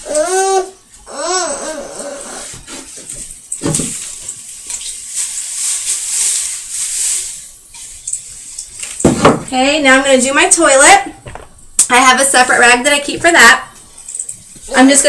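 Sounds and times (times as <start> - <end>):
cloth wiping wooden shelves: 1.9 - 3.2
knock on wood: 9.1 - 9.5.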